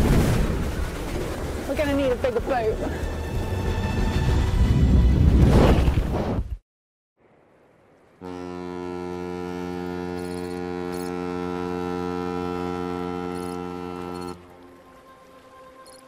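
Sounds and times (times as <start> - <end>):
ship's horn blast: 8.2 - 15.7.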